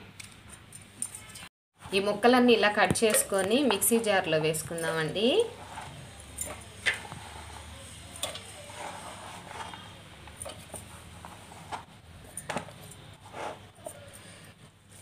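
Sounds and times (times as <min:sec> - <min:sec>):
faint knocks and scrapes: 0:05.5 - 0:15.0.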